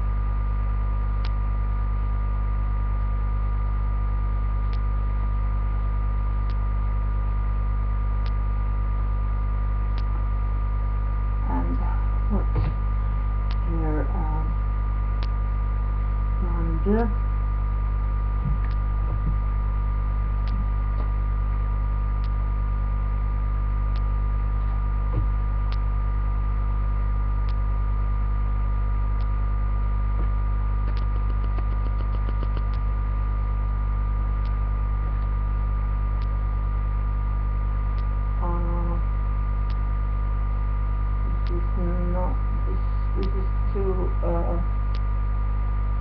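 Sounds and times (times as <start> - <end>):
electrical mains hum: 0.0 - 46.0
faint clicks: 30.8 - 32.9.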